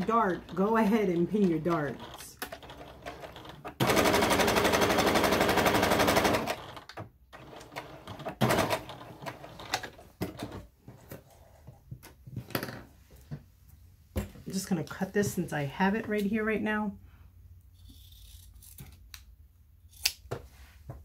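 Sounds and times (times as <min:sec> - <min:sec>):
sewing machine rattling: 0:00.0 - 0:10.6.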